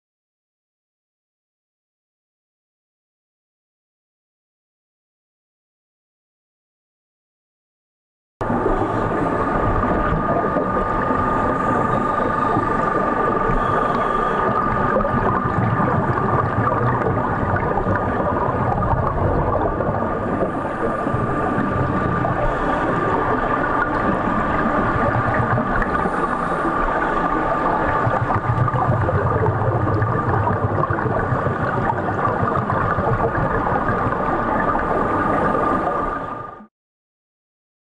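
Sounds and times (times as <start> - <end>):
underwater rushing noise: 8.4 - 36.7.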